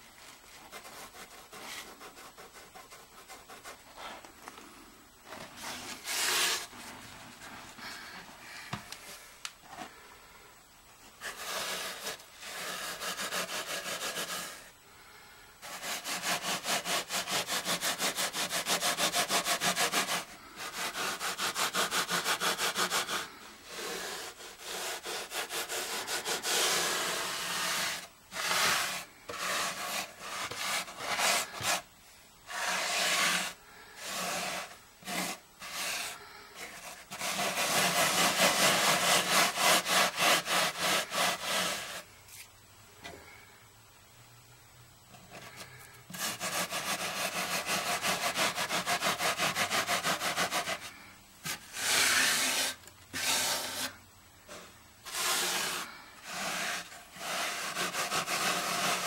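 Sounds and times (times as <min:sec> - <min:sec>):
hand rubbing on carpet: 0:20.9 - 0:31.9, 0:32.5 - 0:42.5.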